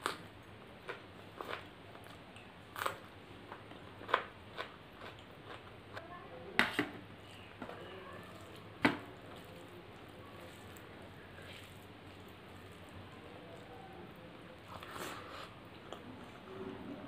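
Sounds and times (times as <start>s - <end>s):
chewing with wet mouth clicks: 0.0s - 5.7s.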